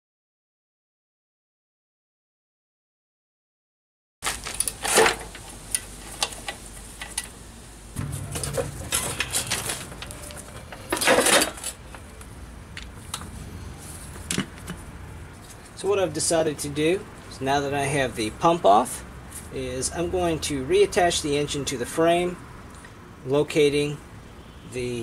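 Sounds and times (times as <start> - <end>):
wrench and metal parts clanking: 8.0 - 12.0.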